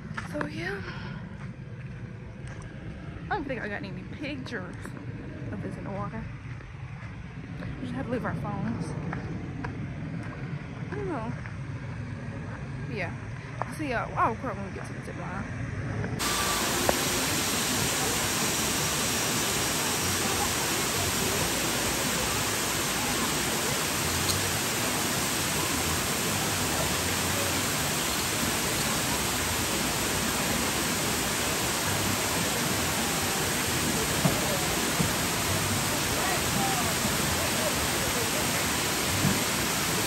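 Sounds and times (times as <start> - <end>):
steady rushing noise: 15.5 - 40.0.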